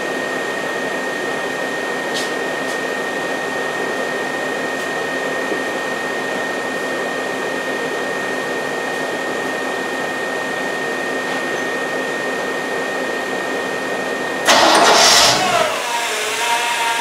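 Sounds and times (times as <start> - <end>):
car engine running with whine: 14.4 - 16.4.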